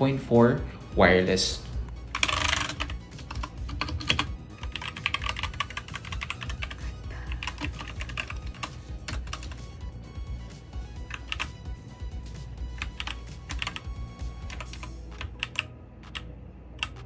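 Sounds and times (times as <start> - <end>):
background music: 0.0 - 17.0
mechanical keyboard typing: 2.1 - 9.6, 11.0 - 11.6, 12.7 - 16.2.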